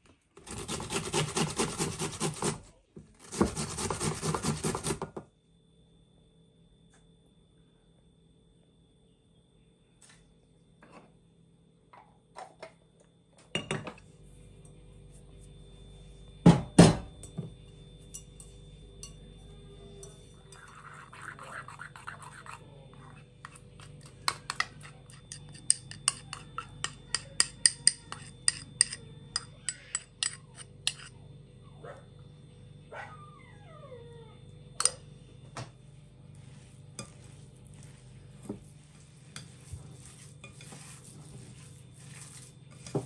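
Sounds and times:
utensil scraping glass bowl: 0.5s - 2.6s, 3.2s - 5.0s, 20.0s - 31.1s, 36.9s - 43.0s.

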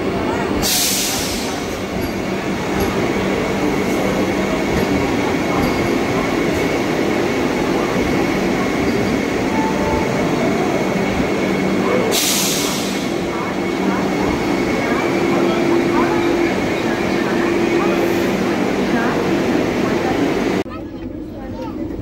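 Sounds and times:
train rolling past: 0.0s - 22.0s.

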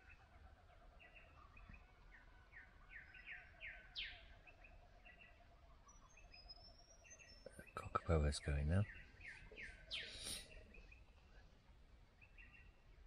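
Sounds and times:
faint birdsong chirps: 0.0s - 13.0s.

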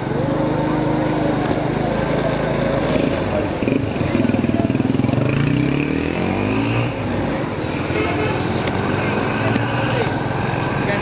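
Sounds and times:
motorcycle engine accelerating: 0.0s - 11.0s.

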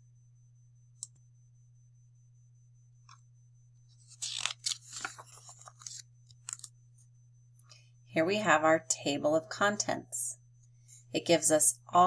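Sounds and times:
book page turning: 4.1s - 6.7s.

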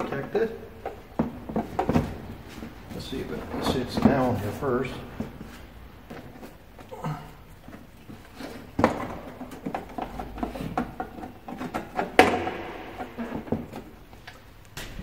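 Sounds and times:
motorcycle seat knocking and rubbing: 0.8s - 2.9s.

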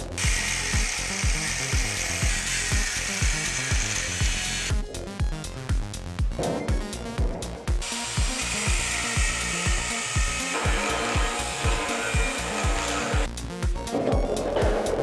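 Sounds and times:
background music with steady beat: 0.0s - 15.0s
angle grinder cutting steel: 0.2s - 4.7s, 7.8s - 13.3s.

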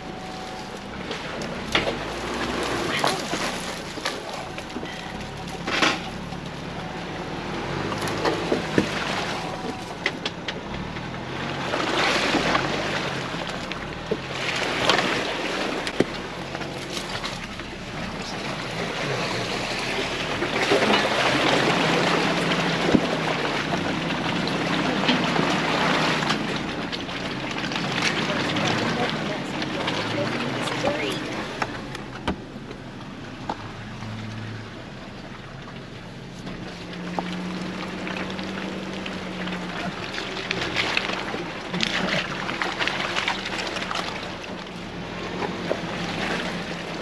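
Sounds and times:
vehicle engine and tyre noise: 0.0s - 47.0s.

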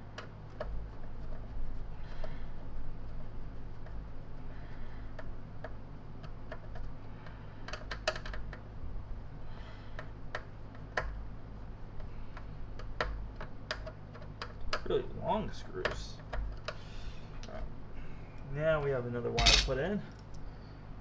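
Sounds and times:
low steady hum: 0.0s - 21.0s
clicks and taps of small parts: 5.2s - 8.6s, 12.0s - 14.9s.

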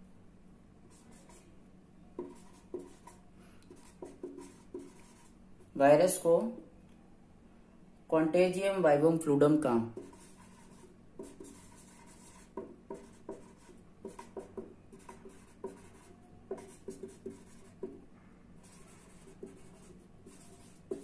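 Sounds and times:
marker pen scratching on paper: 0.9s - 1.5s, 2.2s - 5.4s, 9.9s - 18.0s, 18.6s - 21.0s.

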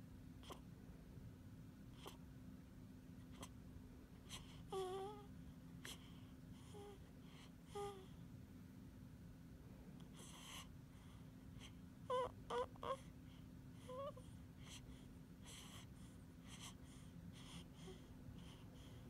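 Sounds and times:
faint breathy sounds: 3.2s - 8.3s, 9.6s - 19.0s.

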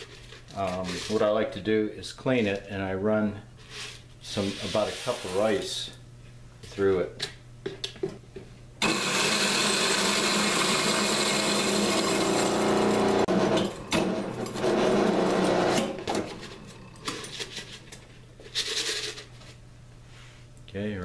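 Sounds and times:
coffee grinder grinding rice: 8.8s - 17.9s.

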